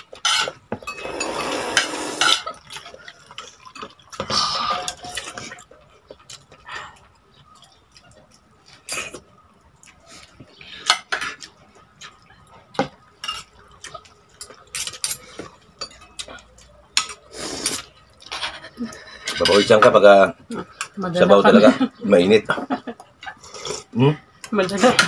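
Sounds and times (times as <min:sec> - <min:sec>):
dishes clinking and knocking: 0:00.0 - 0:06.2, 0:14.4 - 0:20.0.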